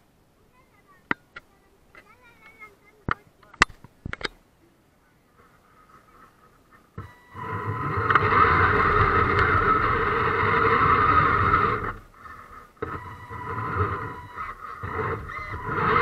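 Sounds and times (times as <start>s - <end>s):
electric motor whining: 7.0s - 16.0s.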